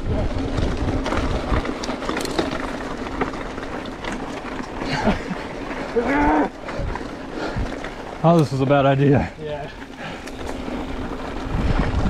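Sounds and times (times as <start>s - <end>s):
bicycle tyre noise: 0.0s - 12.0s
bike clicks and rattles: 0.0s - 12.0s
wind rush: 9.7s - 12.0s.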